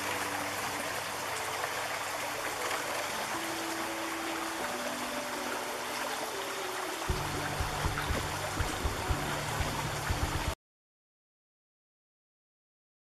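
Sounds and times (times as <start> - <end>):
faint music-like tones: 0.0 - 10.6
river rushing over rocks: 0.0 - 10.6
low rumble with thumps: 7.1 - 10.6.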